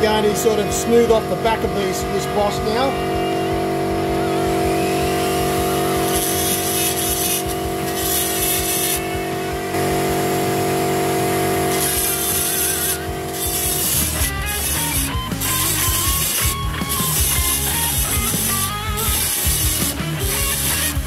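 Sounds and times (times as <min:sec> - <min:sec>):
rotary tool grinding metal: 0:05.8 - 0:09.8, 0:11.4 - 0:21.0
hiss of bit biting iron: 0:06.0 - 0:09.1, 0:11.7 - 0:21.0.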